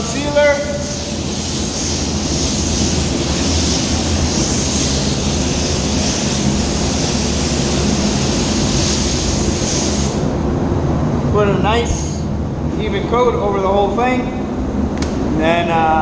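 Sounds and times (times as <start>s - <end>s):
spray gun hissing: 0.0s - 10.3s
air handling low hum: 0.0s - 16.0s.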